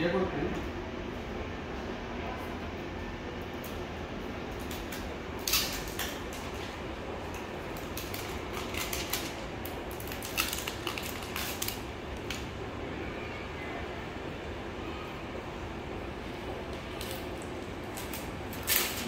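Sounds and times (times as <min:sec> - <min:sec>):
steady room hum: 0:00.0 - 0:19.0
plastic wrapping crinkling: 0:04.6 - 0:12.5, 0:16.6 - 0:19.0.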